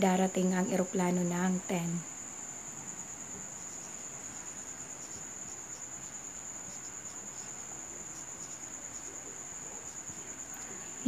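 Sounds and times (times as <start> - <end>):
cricket trilling: 0.0 - 11.0.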